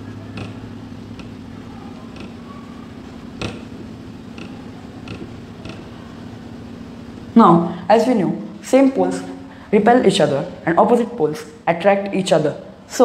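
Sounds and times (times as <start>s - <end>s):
steady low hum: 0.0s - 13.0s
marker writing on whiteboard: 0.4s - 6.0s.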